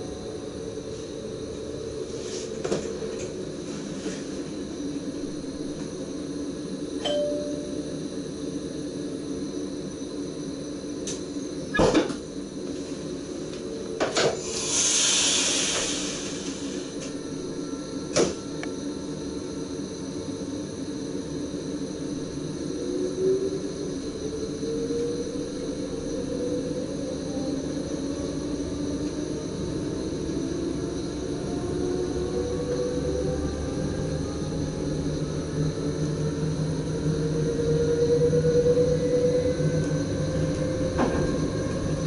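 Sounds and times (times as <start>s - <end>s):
train electrical hum: 0.0s - 42.0s
air hiss: 14.4s - 17.0s.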